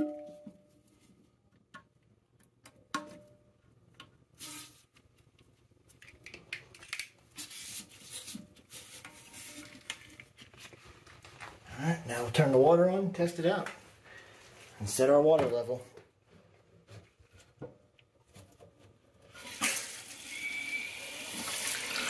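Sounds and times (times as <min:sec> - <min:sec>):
hose rubbing and scraping: 0:07.4 - 0:11.6.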